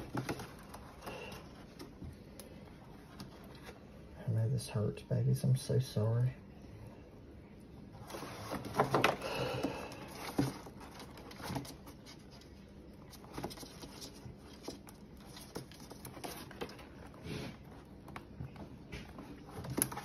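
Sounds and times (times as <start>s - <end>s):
hands rustling through twine and fur: 7.9s - 20.0s.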